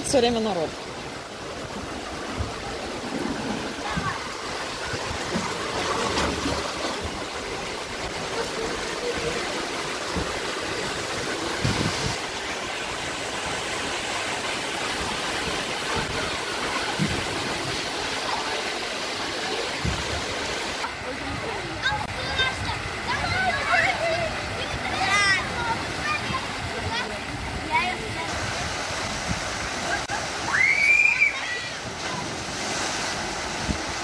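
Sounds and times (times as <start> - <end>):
running water rushing: 0.0 - 34.0.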